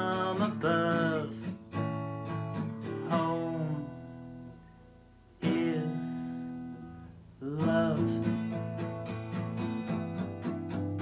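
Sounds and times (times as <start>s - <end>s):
acoustic guitar chords ringing: 0.0s - 11.0s.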